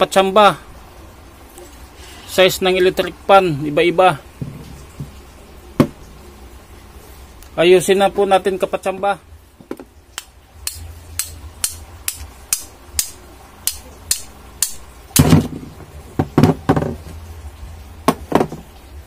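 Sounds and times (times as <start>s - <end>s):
hammer tapping on metal: 10.2s - 15.3s.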